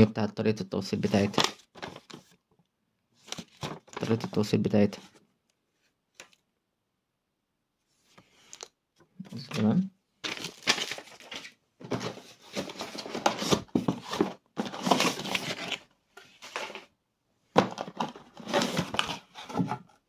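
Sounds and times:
paper and packaging crinkling: 1.1 - 2.3, 3.2 - 4.4, 10.2 - 16.9, 17.6 - 19.6.

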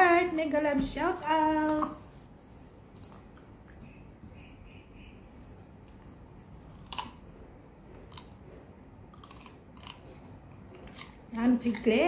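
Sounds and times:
dog crunching cucumber: 2.9 - 3.8, 5.4 - 12.0.

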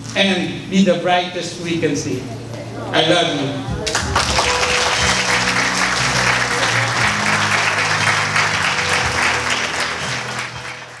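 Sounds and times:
music playing: 2.3 - 11.0
people applauding: 3.8 - 11.0.

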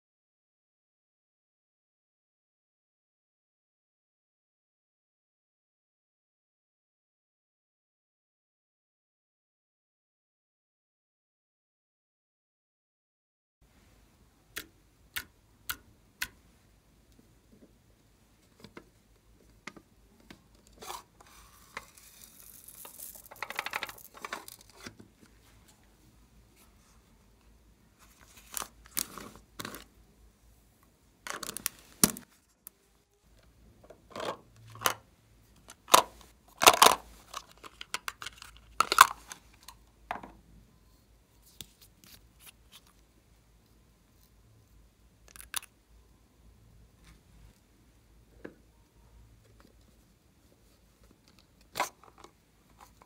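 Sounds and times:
plastic lids and caps clicking: 19.7 - 25.0, 31.3 - 32.3, 35.6 - 40.3, 45.3 - 45.7.

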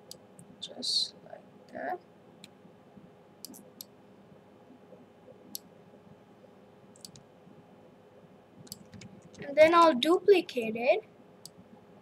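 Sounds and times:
faint steady hum: 0.0 - 12.0
computer mouse clicking: 3.4 - 3.9, 6.9 - 7.3, 8.6 - 9.5.

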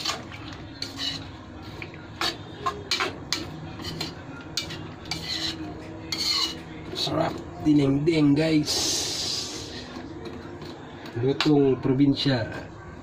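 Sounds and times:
metal spoon scraping metal pan: 0.0 - 6.6.

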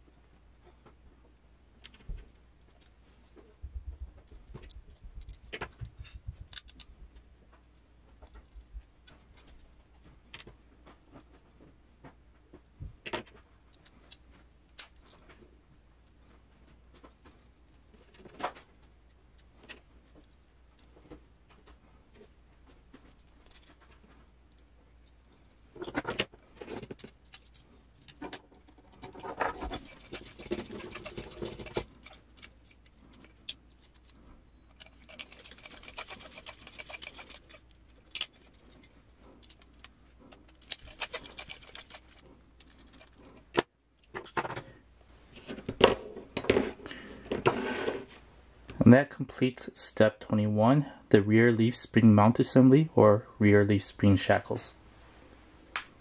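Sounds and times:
screws scraping and rattling: 23.0 - 44.7
small metal parts clinking: 23.1 - 43.3.

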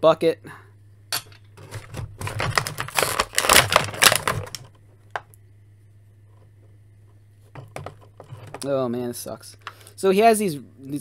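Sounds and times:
hard plastic crackling clicks: 2.2 - 5.4.

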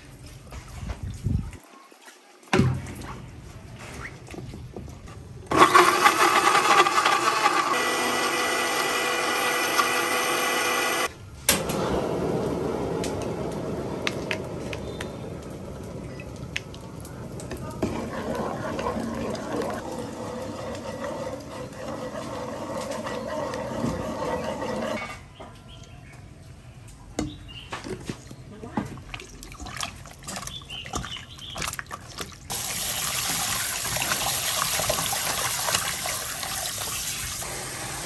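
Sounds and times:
electric blender running: 5.5 - 11.1
sauce pouring into a wok: 32.5 - 37.4.

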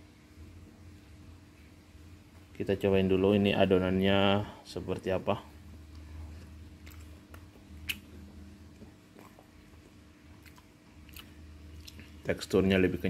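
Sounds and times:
steady low hum: 0.0 - 13.0
faint chewing: 5.9 - 12.2
mouth clicks: 7.8 - 8.2.

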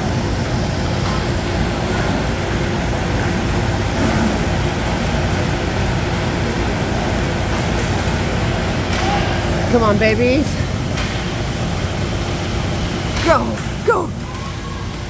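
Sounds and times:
indoor rink din: 1.0 - 5.5, 6.2 - 11.4.

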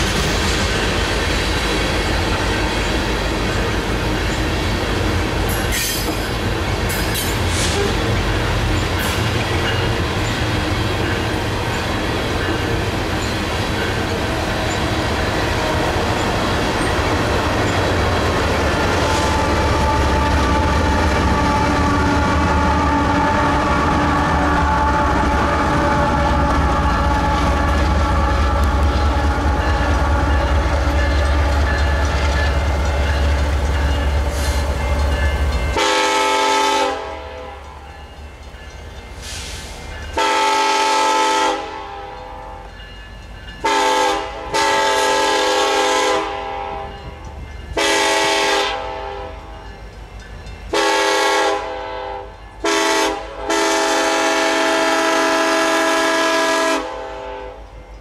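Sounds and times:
locomotives rumbling past: 0.0 - 36.8
train horn blasts: 14.4 - 32.6, 35.7 - 37.8, 40.2 - 42.8, 43.6 - 47.1, 47.8 - 49.7, 50.7 - 57.8.

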